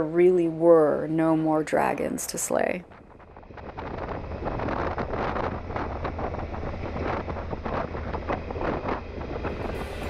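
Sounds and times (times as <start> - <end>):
wind buffeting microphone: 0.0 - 10.0
motorcycle engine drone: 2.8 - 10.0.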